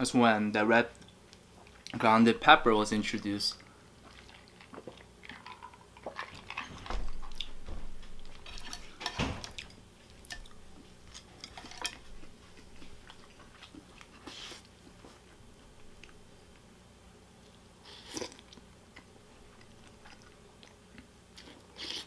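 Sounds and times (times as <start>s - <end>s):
chewing: 3.6s - 7.6s, 9.5s - 15.3s, 17.4s - 22.0s.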